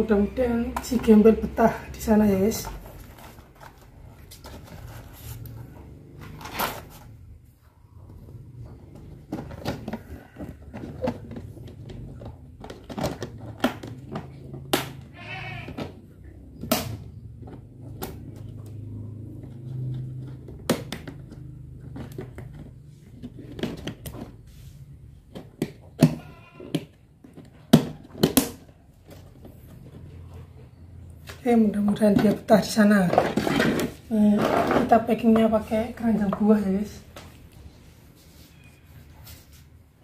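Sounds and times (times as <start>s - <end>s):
plastic crates clacking: 8.8s - 24.4s, 31.3s - 36.6s.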